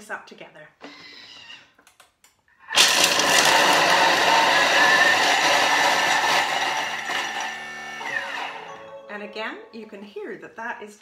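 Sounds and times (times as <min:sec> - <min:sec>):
food processor blade chopping: 0:02.8 - 0:08.7.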